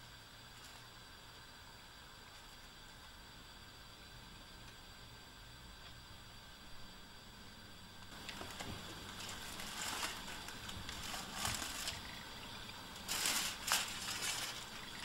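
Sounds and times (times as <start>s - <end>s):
aluminium foil crinkling: 0.5s - 0.9s, 8.2s - 15.0s.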